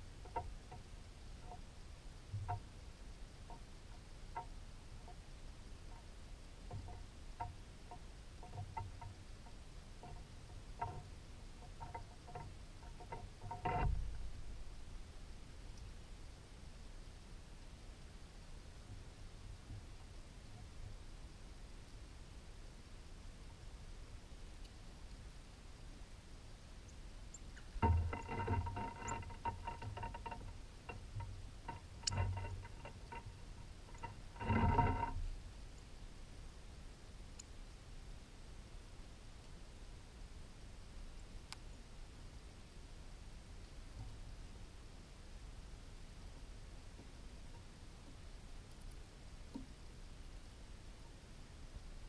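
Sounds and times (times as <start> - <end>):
woodpecker tapping on metal feeder: 6.7 - 14.4, 27.6 - 35.2
bird feet scratching metal pole: 27.6 - 35.3
metallic rattling: 27.7 - 35.2.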